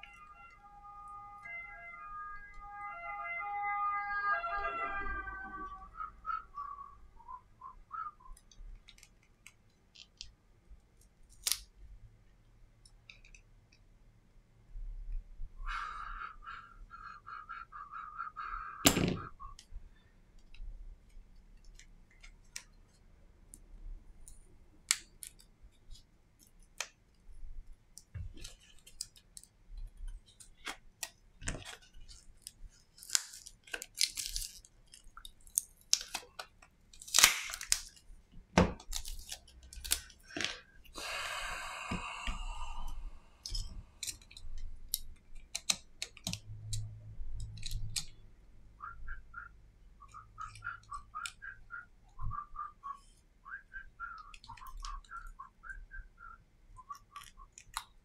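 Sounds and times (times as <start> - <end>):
plastic and metal clicks and snaps: 11.0 - 11.7, 27.9 - 40.6, 43.4 - 48.2, 56.9 - 58.0.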